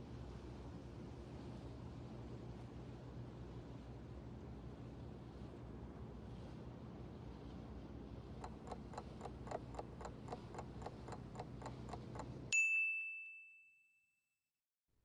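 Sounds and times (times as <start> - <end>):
clock ticking: 8.4 - 12.5
bell ding: 12.5 - 14.2.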